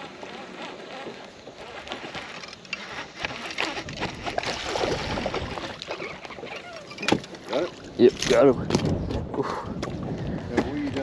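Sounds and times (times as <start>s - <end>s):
water splashing and sloshing: 0.0s - 11.0s
fish thrashing at the surface: 1.8s - 8.4s.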